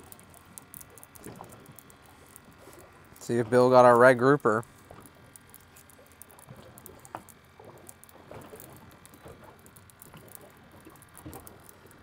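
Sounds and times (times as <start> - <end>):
fishing reel knocks and ticks: 0.0 - 12.0.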